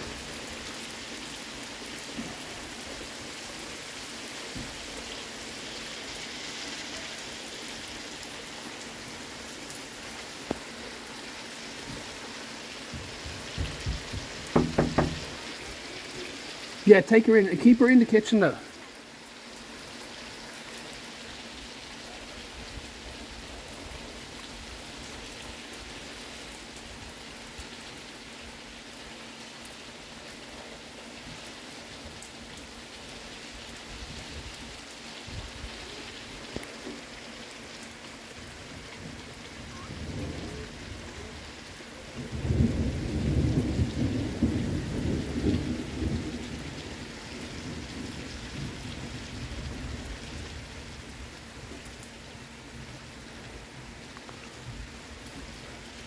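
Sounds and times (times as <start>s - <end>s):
steady rain falling: 0.0s - 56.0s
rumbling thunder: 42.2s - 50.8s.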